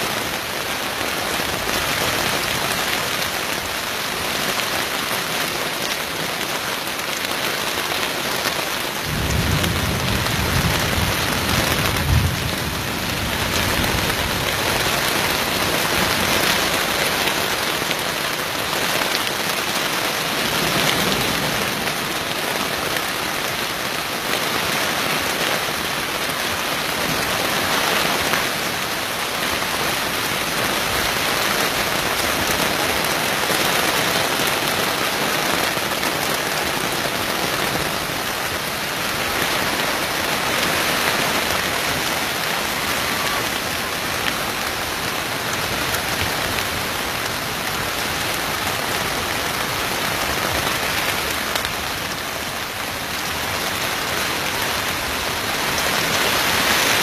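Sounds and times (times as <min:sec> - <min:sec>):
heavy rain pouring: 0:00.0 - 0:57.0.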